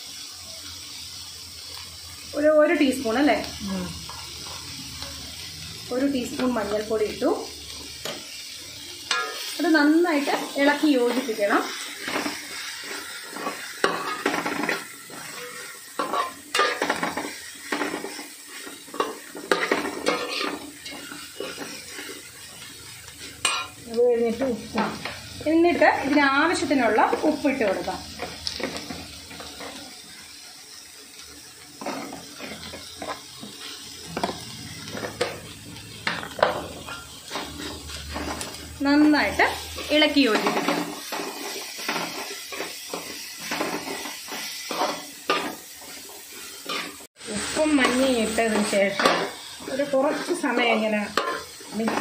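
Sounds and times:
onions sizzling: 0.0s - 52.0s
metal spatula scraping a pot: 12.0s - 23.8s, 36.0s - 38.8s, 47.8s - 52.0s.

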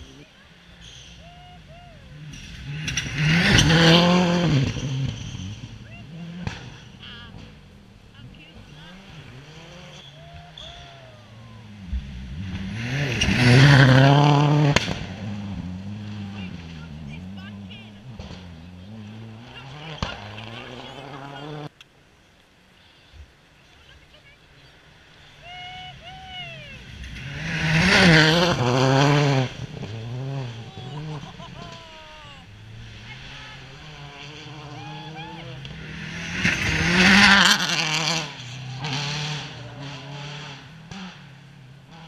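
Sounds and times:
rally car engine passing: 0.0s - 21.8s, 23.9s - 42.0s
sharp crack: 14.6s - 15.4s.

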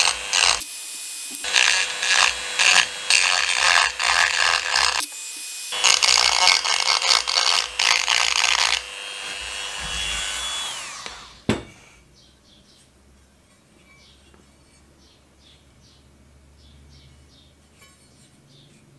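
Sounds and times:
rotary tool grinding metal: 0.0s - 12.0s
rotary tool high whine: 0.0s - 12.0s.

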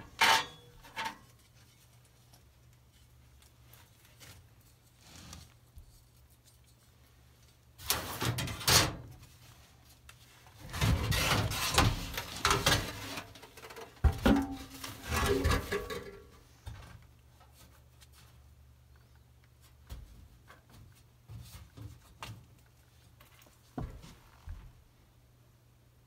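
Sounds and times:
sheet metal scraping and clanking: 0.0s - 1.3s, 10.6s - 13.4s, 14.2s - 16.3s.

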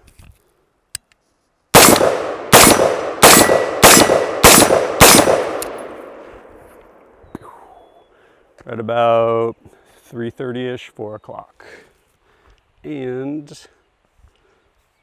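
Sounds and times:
gunshots with echo: 1.8s - 6.3s.

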